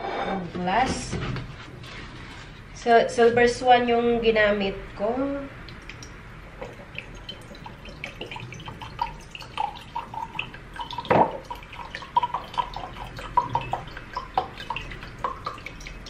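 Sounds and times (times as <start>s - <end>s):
liquid glug: 5.6s - 16.0s
vinegar trickling into a jar: 5.7s - 16.0s.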